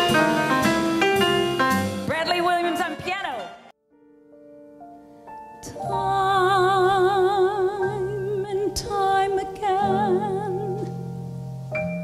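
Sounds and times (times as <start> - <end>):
band with drums and piano: 0.0 - 3.1
woman singing with vibrato: 5.7 - 10.9.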